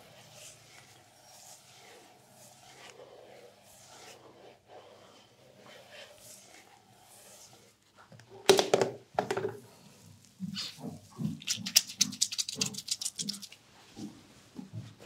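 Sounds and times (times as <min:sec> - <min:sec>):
wet hair squelching: 0:11.3 - 0:13.6.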